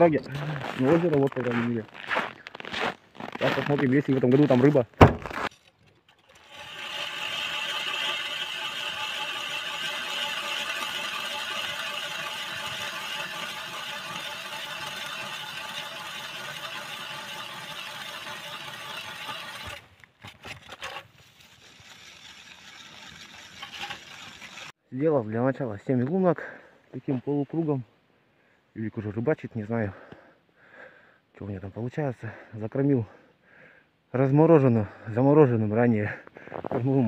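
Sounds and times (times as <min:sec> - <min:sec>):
ice auger motor whine: 0:06.3 - 0:19.8.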